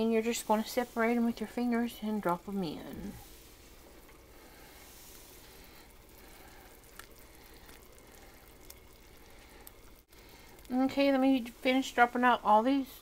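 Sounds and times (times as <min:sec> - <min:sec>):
broth bubbling: 0:00.2 - 0:12.5.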